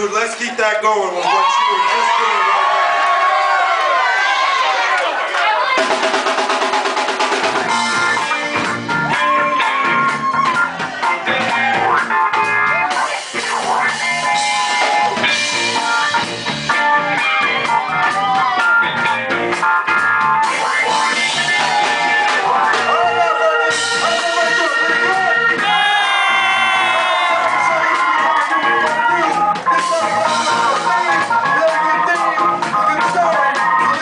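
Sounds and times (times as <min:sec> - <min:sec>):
drum kit: 0:05.7 - 0:34.0
electric guitar: 0:07.0 - 0:34.0
electric bass: 0:07.4 - 0:34.0.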